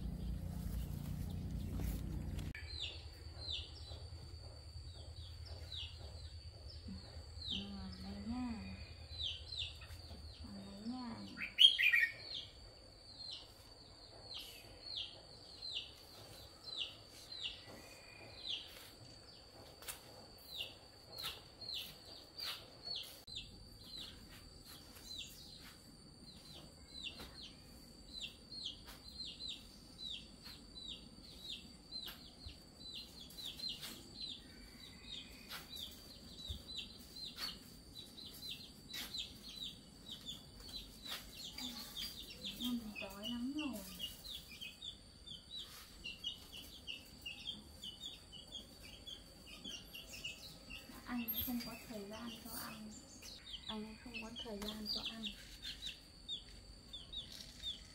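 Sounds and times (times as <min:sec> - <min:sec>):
chicks peeping: 0:00.0 - 0:04.0, 0:35.1 - 0:57.2.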